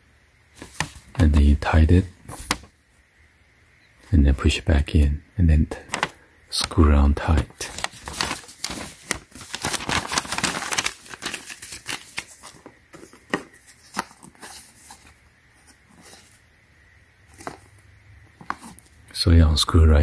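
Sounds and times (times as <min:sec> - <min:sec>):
paper rustling and crinkling: 0:00.6 - 0:02.7, 0:05.7 - 0:16.4, 0:17.3 - 0:17.8, 0:18.4 - 0:19.0
cardboard packaging tapping: 0:07.6 - 0:14.3.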